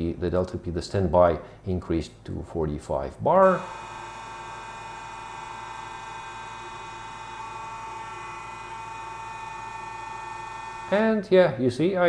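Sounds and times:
hydraulic pump whine: 3.4 - 11.1.

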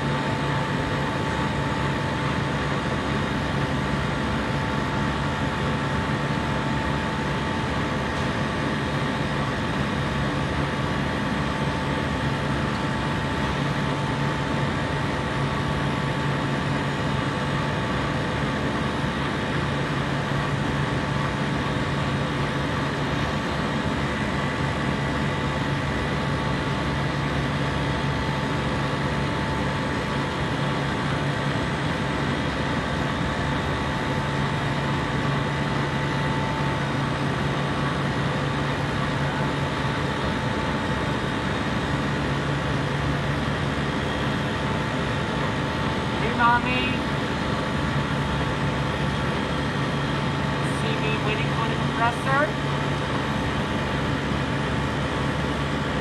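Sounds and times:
compressor humming: 0.0 - 56.0.

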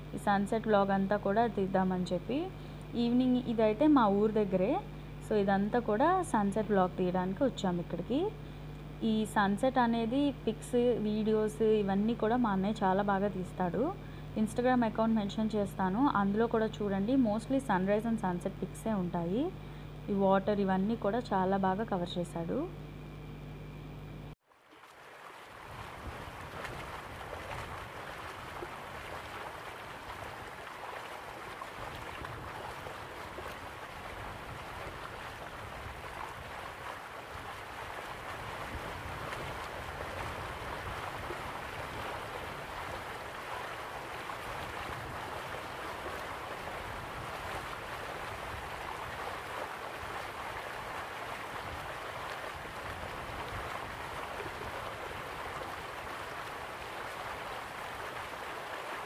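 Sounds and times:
river water rushing: 24.6 - 59.0
wind rumbling on microphone: 25.6 - 58.4.

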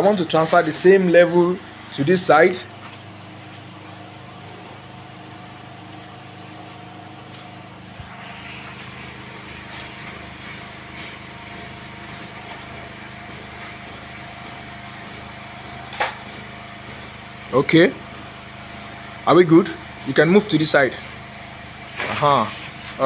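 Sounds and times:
mechanical hum: 0.0 - 23.0.

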